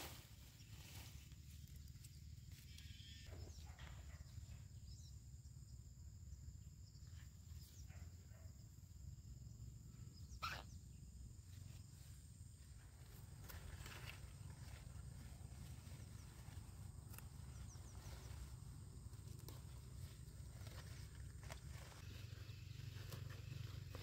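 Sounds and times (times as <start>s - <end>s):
leaves rustling: 12.7s - 24.0s.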